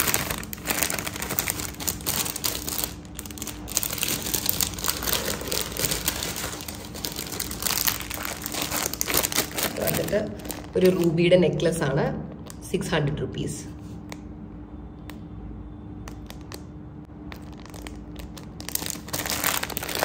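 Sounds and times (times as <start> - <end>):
plastic pouches crinkling: 0.0 - 11.3, 12.3 - 12.7, 16.0 - 20.0.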